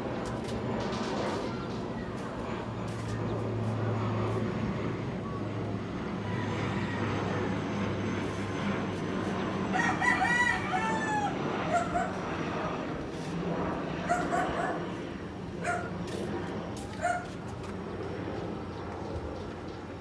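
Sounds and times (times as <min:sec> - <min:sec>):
steady low hum: 0:00.0 - 0:20.0
rooster crowing: 0:06.2 - 0:07.7, 0:09.7 - 0:12.1.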